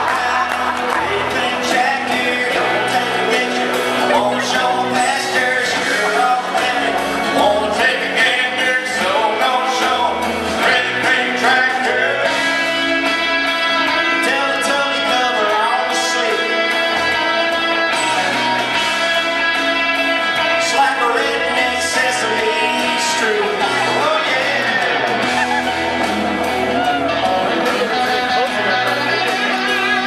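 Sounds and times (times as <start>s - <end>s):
man singing into microphone: 0.0s - 25.6s
electric guitar: 0.0s - 30.0s
low bass line: 16.9s - 30.0s.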